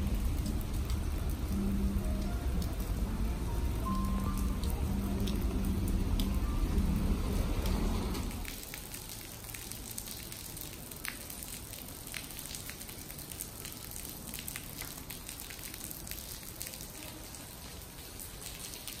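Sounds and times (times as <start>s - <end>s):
drops splashing: 0.0s - 15.8s
rain on stone paving: 0.0s - 19.0s.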